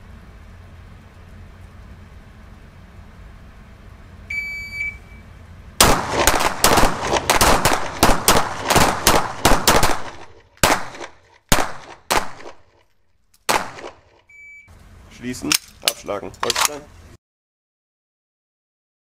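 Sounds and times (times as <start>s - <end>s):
short electronic beep: 4.3s - 5.3s, 14.3s - 14.7s
volley of pistol shots: 5.8s - 12.8s, 13.5s - 14.2s.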